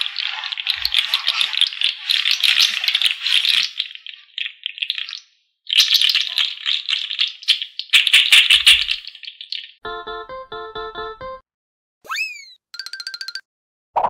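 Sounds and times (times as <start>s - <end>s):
small hard pieces rattling: 0.0s - 9.8s.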